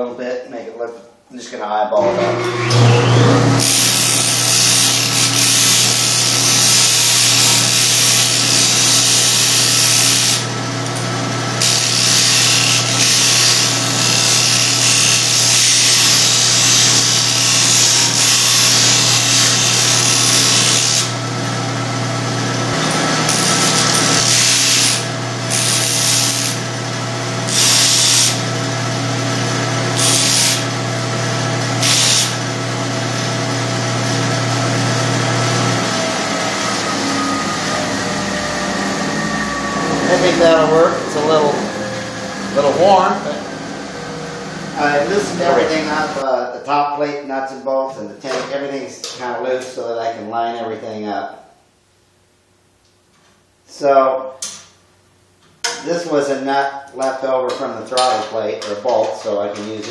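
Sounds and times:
metal grinding on sanding disc: 0:02.0 - 0:10.5, 0:11.6 - 0:21.2, 0:22.8 - 0:26.6, 0:27.5 - 0:28.4, 0:29.9 - 0:30.7, 0:31.8 - 0:32.4.

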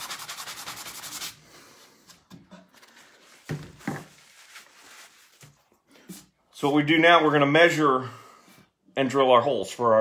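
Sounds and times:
sanding block on wood: 0:00.0 - 0:01.4.

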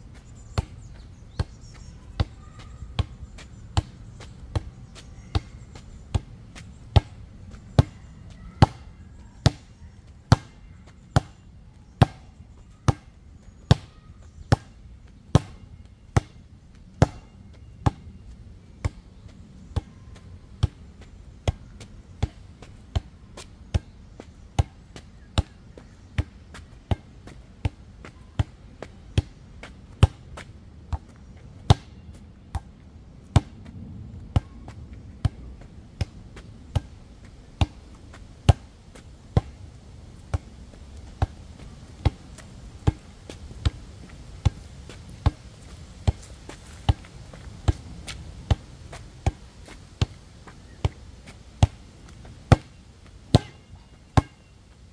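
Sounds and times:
basketball bouncing: 0:53.4 - 0:53.6.

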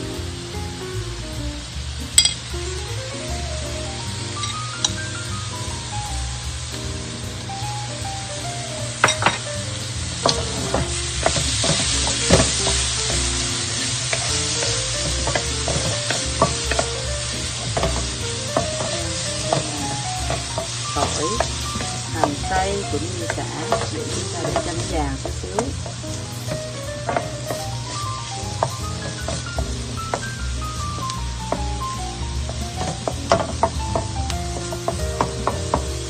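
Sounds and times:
background music: 0:00.0 - 0:36.0
food sizzling in a wok: 0:00.0 - 0:36.0
utensils knocking against pan: 0:02.2 - 0:02.4, 0:09.0 - 0:09.5, 0:10.2 - 0:27.8, 0:28.5 - 0:36.0
wooden spatula scraping a pan: 0:10.2 - 0:31.6.

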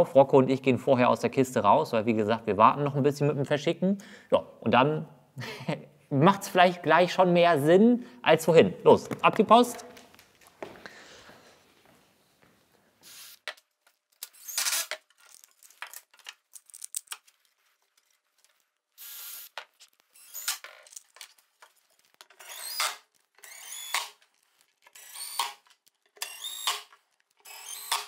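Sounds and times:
handling clicks and knocks: 0:14.9 - 0:18.6
drill motor whine: 0:19.0 - 0:19.5, 0:20.1 - 0:20.6, 0:22.4 - 0:24.1, 0:25.0 - 0:25.6, 0:26.2 - 0:26.9, 0:27.5 - 0:28.0.

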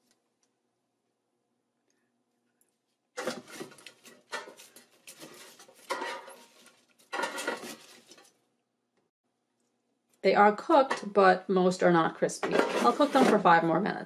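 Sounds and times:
tongs scraping chips in basket: 0:03.2 - 0:08.3.

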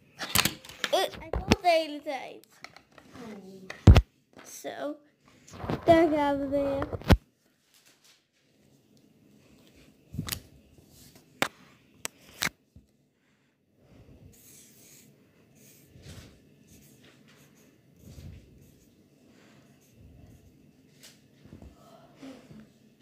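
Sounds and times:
marker scratching on paper: 0:14.3 - 0:20.6.

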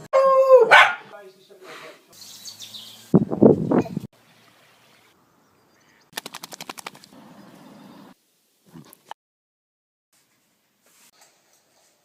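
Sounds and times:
dog ears flapping: 0:06.1 - 0:07.2.

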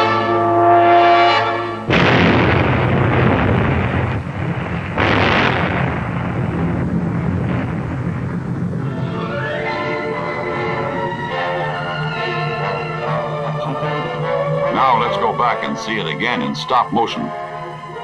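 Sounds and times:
brass chord: 0:00.0 - 0:03.7, 0:08.8 - 0:18.0
long rumble: 0:00.2 - 0:18.0
loud explosion: 0:01.8 - 0:13.1.

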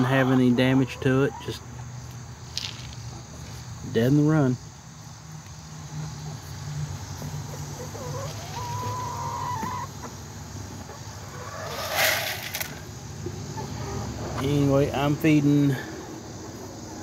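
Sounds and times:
chicken calling: 0:00.0 - 0:01.8, 0:07.4 - 0:17.0.

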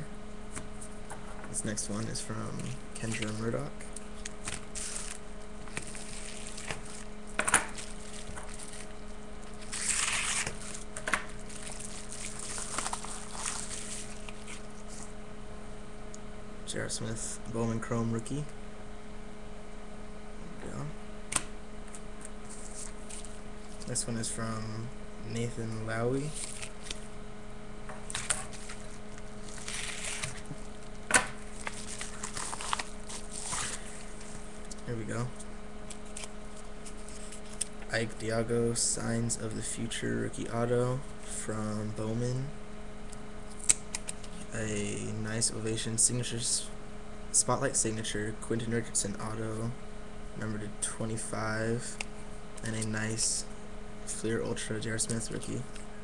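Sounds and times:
low electrical hum: 0:00.0 - 0:56.0
trading cards handled: 0:04.0 - 0:15.1, 0:26.3 - 0:27.1, 0:28.0 - 0:37.8
packaging rustling and tearing: 0:04.1 - 0:07.1, 0:07.7 - 0:15.0, 0:26.3 - 0:27.0, 0:28.1 - 0:34.8.

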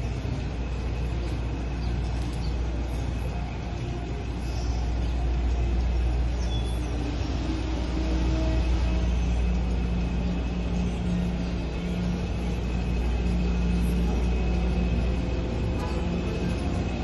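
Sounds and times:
city rumble: 0:00.0 - 0:17.0
faint hum: 0:00.0 - 0:17.0.

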